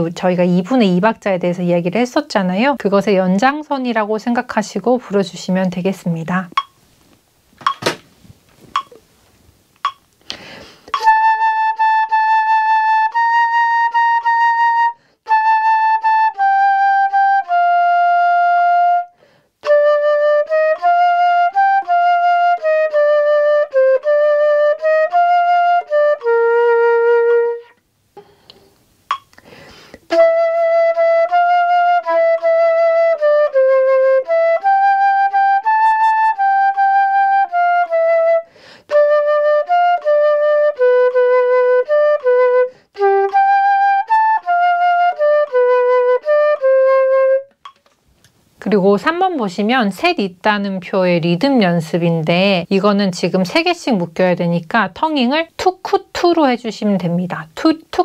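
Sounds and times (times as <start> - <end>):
quick inhale: 10.2 - 11.0, 15.0 - 15.2, 19.2 - 19.6, 28.2 - 28.8, 29.4 - 30.1, 38.5 - 38.9, 42.7 - 43.0
flute playing short and held notes: 10.9 - 27.8, 30.1 - 47.5.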